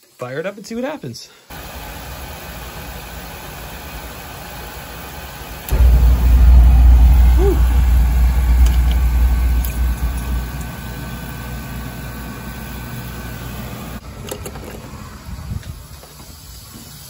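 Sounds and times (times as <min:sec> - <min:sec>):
boiler burner rumbling: 0:05.7 - 0:13.3.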